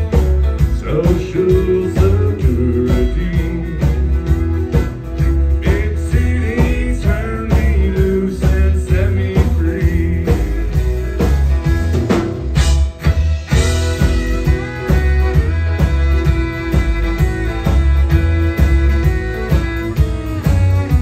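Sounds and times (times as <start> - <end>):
country band playing: 0.0 - 21.0
fiddle melody: 0.0 - 21.0.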